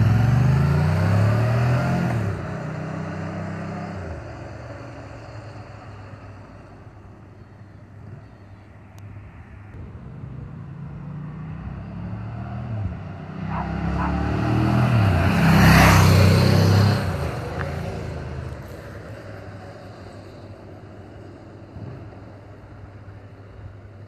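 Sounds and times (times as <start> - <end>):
motorcycle passing by: 0.0 - 6.3, 9.8 - 20.5.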